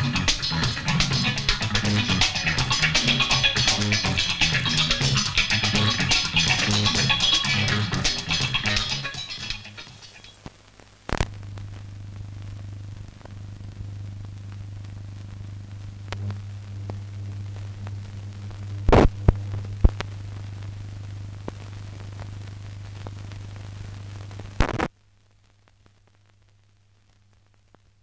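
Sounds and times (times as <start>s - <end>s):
low electrical hum with hiss: 0.0s - 28.0s
sharp pops and clicks: 9.5s - 11.4s, 18.9s - 20.1s.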